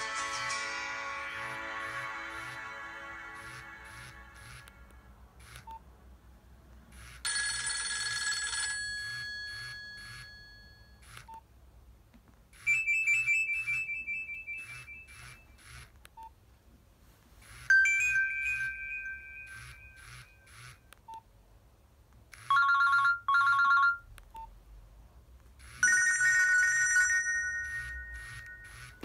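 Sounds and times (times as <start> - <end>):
phone ringtone melodies: 0.0 - 5.1, 7.3 - 10.5, 12.7 - 15.1, 17.7 - 20.6, 22.5 - 24.1, 25.8 - 29.0.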